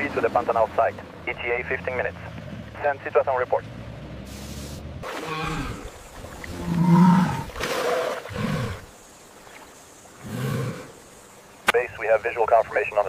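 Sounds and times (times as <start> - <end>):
cow bellowing: 5.1 - 8.9.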